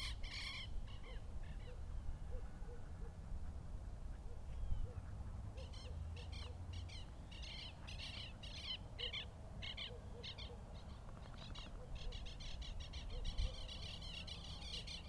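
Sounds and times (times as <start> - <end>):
bird harsh high calls: 0.0 - 2.5.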